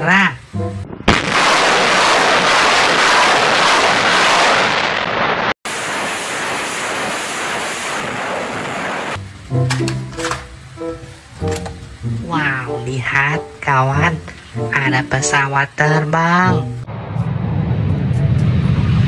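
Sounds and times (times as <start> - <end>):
rocket salvo launching: 0.9 - 9.2.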